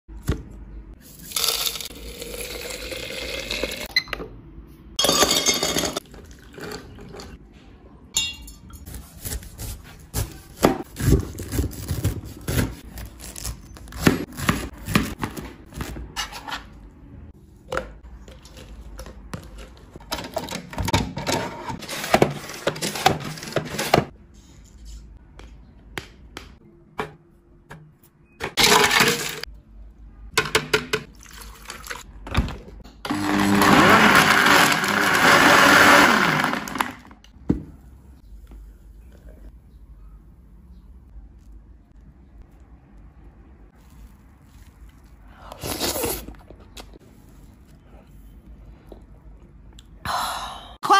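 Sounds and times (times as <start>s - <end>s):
clinks of glass and utensils: 8.2s - 8.9s
liquid pouring: 31.1s - 32.0s.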